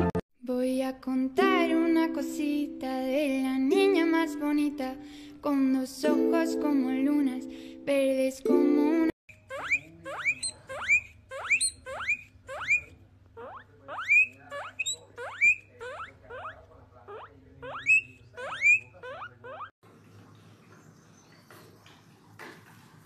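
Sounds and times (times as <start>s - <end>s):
guinea pig wheeking: 9.3s - 19.8s.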